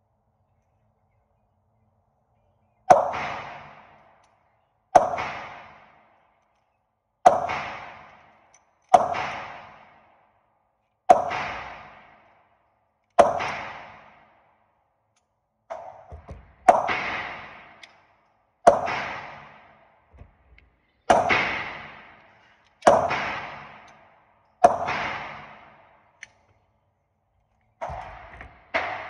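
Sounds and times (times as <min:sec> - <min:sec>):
pistol shots with ringing decay: 0:02.9 - 0:04.2, 0:05.0 - 0:06.2, 0:07.2 - 0:10.2, 0:11.1 - 0:12.3, 0:13.2 - 0:14.4, 0:18.6 - 0:19.8, 0:21.1 - 0:26.0.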